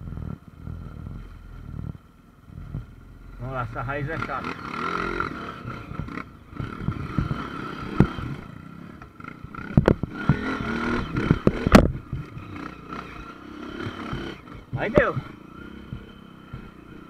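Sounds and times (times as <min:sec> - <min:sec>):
motorcycle engine revving: 0:00.0 - 0:17.0
motorcycle knocking over roots: 0:04.4 - 0:17.0.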